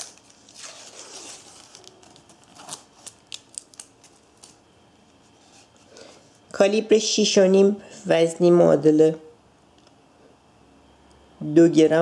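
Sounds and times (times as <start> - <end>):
plastic tape peeling off tin: 0.0 - 4.6.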